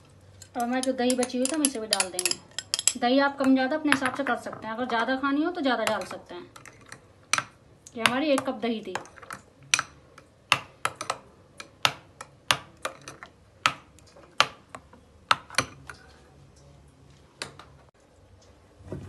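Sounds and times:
spoon clinking against glass bowl: 0.4s - 3.6s.

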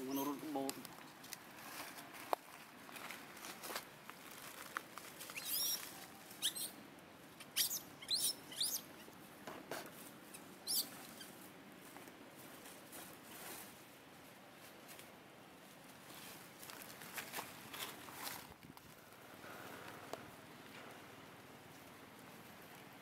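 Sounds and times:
baby monkey squeaky cries: 5.4s - 5.8s, 6.4s - 6.8s, 7.5s - 8.8s, 10.6s - 11.0s.

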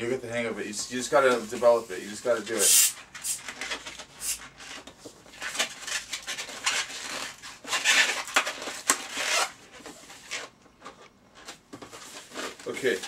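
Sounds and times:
balloons rubbing and rustling: 1.1s - 13.0s.

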